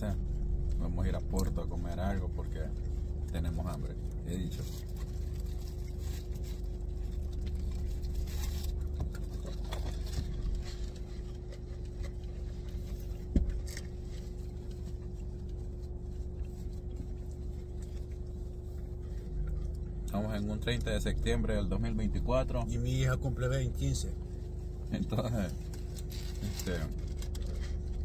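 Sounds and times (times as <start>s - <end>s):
car cabin hum: 0.0s - 28.0s
paper wrapper rustling: 25.6s - 28.0s.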